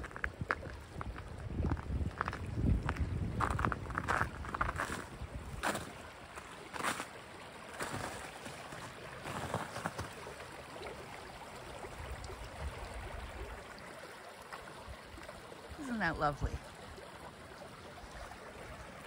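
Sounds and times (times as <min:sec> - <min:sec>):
brook flowing over rocks: 0:00.0 - 0:19.0
footsteps crunching in snow: 0:03.4 - 0:07.1, 0:07.8 - 0:10.1.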